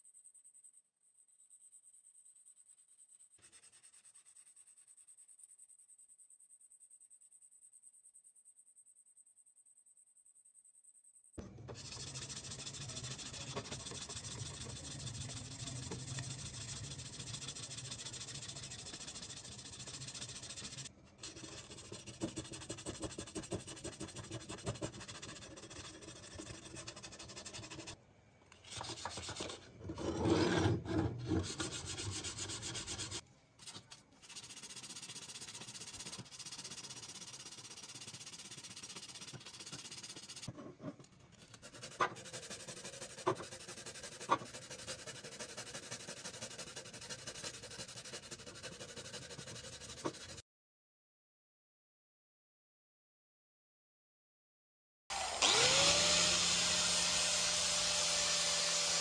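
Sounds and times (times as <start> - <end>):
sandpaper rubbing on steel: 3.4 - 4.6, 11.7 - 28.0, 28.6 - 29.6, 31.3 - 40.5, 41.5 - 50.4, 55.5 - 59.0.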